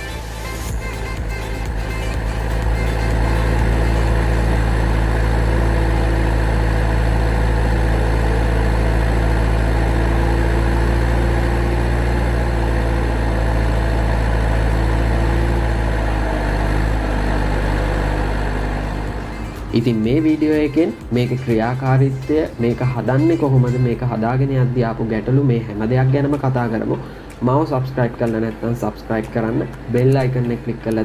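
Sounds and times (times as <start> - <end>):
heavy engine idling: 0.7 - 31.0.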